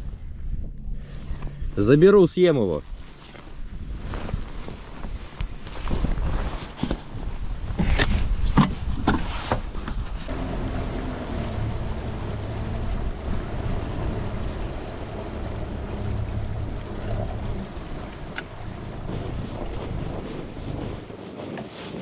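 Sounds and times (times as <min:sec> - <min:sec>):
boat motor humming: 0:10.3 - 0:21.0.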